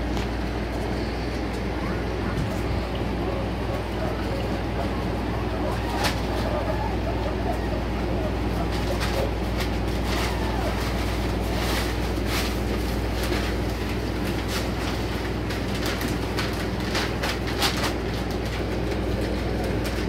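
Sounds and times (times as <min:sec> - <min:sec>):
steady low hum: 0:00.0 - 0:20.0
newspaper rustling and crinkling: 0:08.6 - 0:20.0.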